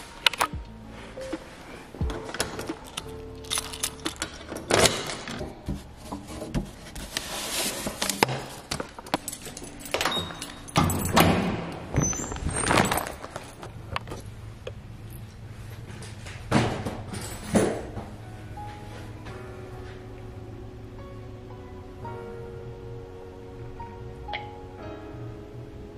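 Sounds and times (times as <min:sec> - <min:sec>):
metal mailbox door clanks: 0:09.2 - 0:12.3
heavy door thud: 0:10.3 - 0:12.6.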